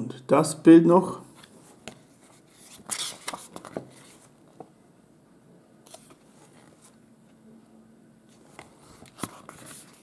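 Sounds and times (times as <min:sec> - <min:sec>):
glossy pages turning: 0:01.4 - 0:04.3, 0:05.9 - 0:07.0, 0:08.3 - 0:10.0.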